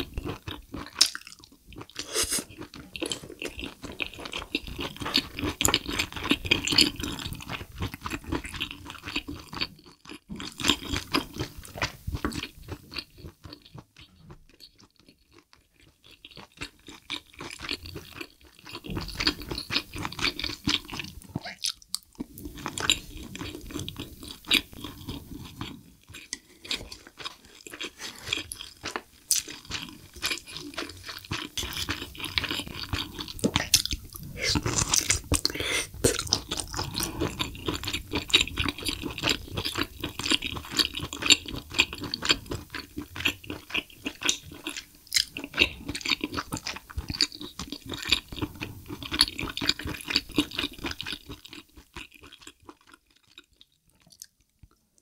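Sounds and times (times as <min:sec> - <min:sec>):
close chewing and biting: 0:00.0 - 0:54.8.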